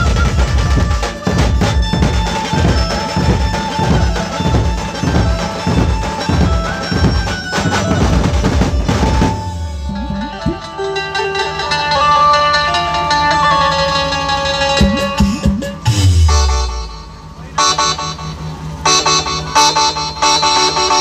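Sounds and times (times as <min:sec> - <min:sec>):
deep barrel drums beating: 0:00.0 - 0:10.8, 0:14.8 - 0:16.6
amplified melody: 0:00.0 - 0:21.0.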